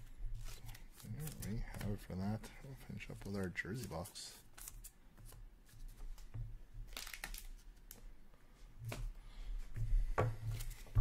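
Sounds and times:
packaging crinkling rustle: 0.3 - 2.4, 5.7 - 8.1.

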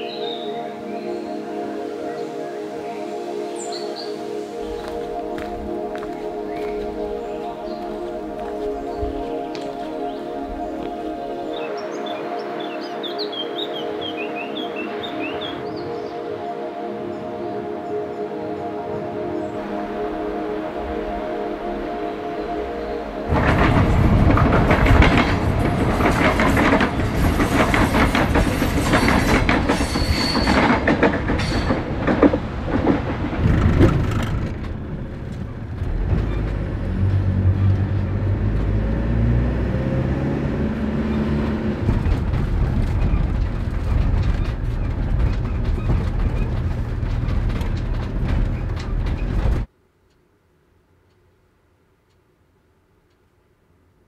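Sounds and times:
road noise: 0.0 - 49.7
clattering and rattling: 23.3 - 34.8, 41.8 - 49.7
engine hum: 30.9 - 49.7.

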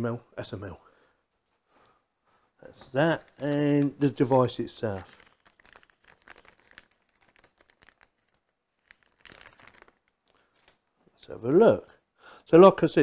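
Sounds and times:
plastic packaging crinkling: 2.7 - 11.1.

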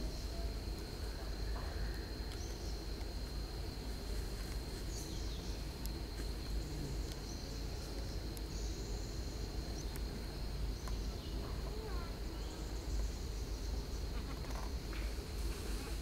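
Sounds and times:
insect high-pitched drone: 0.0 - 16.0
faint chirps: 4.1 - 16.0.

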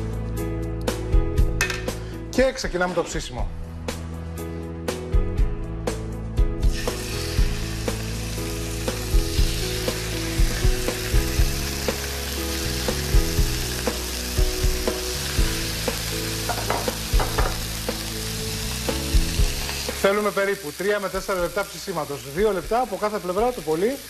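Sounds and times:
background music with steady beat: 0.0 - 20.2
steaks sizzling in grill pans: 6.6 - 24.0.

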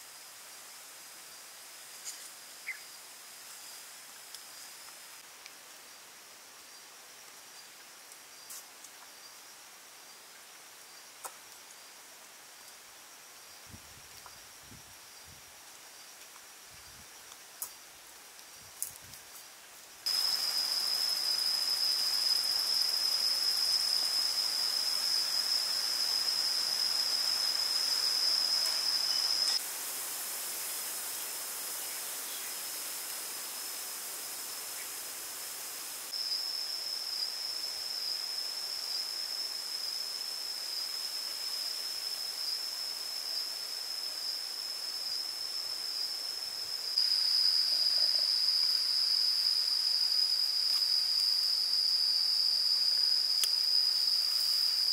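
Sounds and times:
ambient hiss: 0.0 - 54.9
insects buzzing: 0.0 - 54.9.

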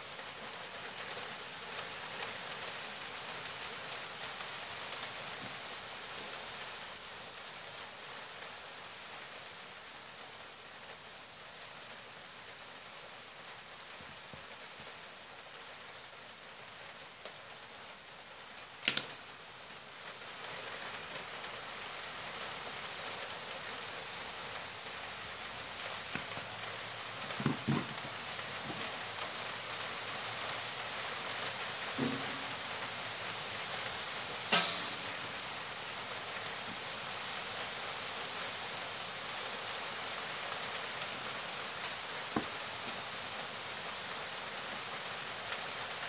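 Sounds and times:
steady hiss: 0.0 - 46.0
sharp click: 18.8 - 19.2, 34.5 - 35.2
soft knocks: 27.4 - 29.0, 32.0 - 32.6.

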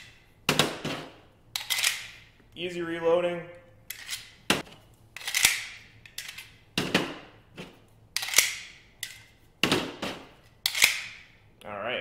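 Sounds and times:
pistol magazine metal clacks: 1.6 - 2.2, 5.2 - 6.6, 8.2 - 9.3, 10.6 - 11.2.

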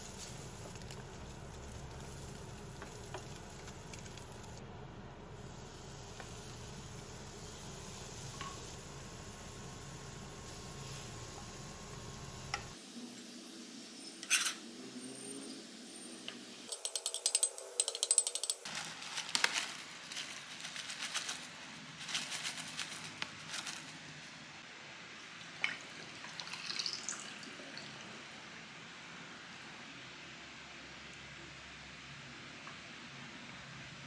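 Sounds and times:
utensils clinking and scraping: 16.7 - 24.0.

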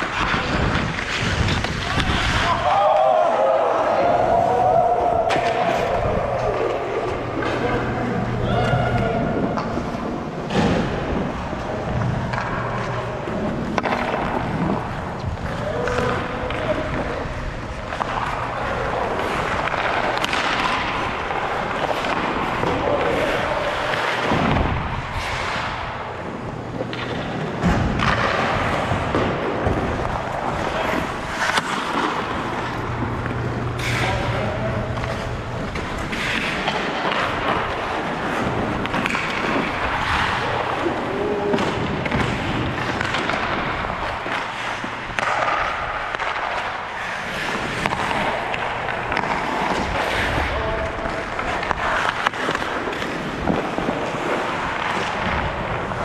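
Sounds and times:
skates scraping ice: 0.0 - 56.0
sticks and puck clacking: 0.0 - 56.0
players shouting: 1.8 - 9.8
steady low hum: 3.9 - 56.0.

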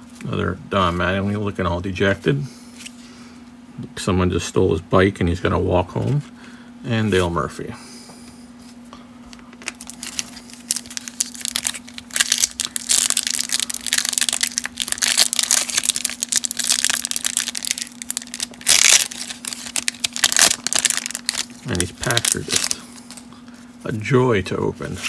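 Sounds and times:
foil wrapper crinkling and tearing: 9.6 - 23.3
foil wrapper ripping: 9.6 - 23.3.

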